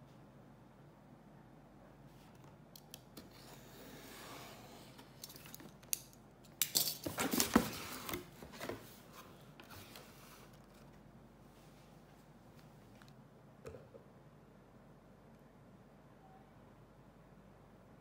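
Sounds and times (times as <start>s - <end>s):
soft rustle: 8.5s - 13.1s.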